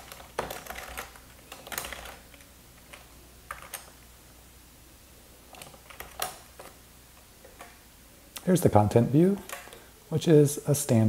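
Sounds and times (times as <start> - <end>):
typing on computer keyboard: 0.0 - 4.0, 5.5 - 6.8.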